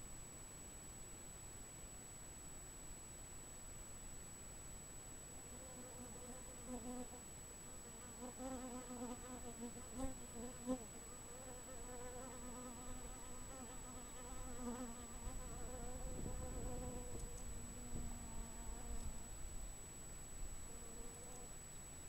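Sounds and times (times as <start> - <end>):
flying insect buzzing: 5.5 - 19.4, 20.6 - 21.5.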